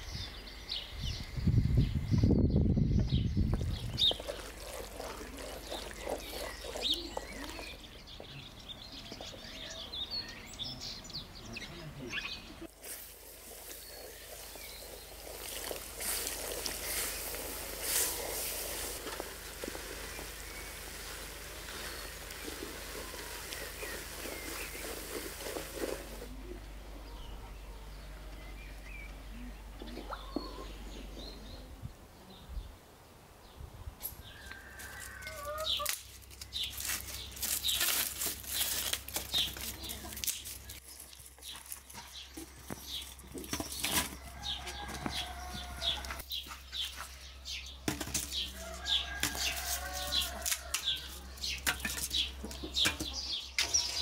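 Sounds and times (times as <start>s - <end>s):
spoon stirring batter: 3.6s - 7.9s
hen clucking: 4.1s - 7.9s, 29.1s - 31.2s, 35.3s - 36.0s.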